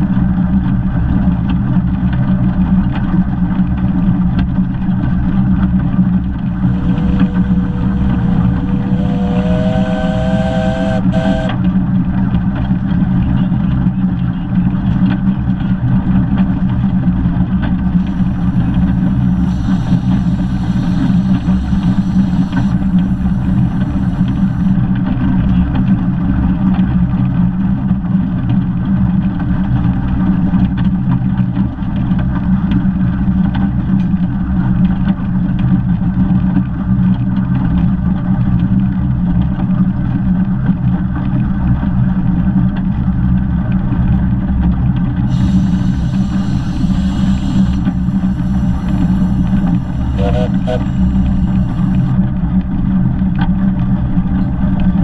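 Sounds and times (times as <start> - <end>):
steam train rumbling: 6.4 - 11.6, 18.0 - 24.8, 45.2 - 52.2.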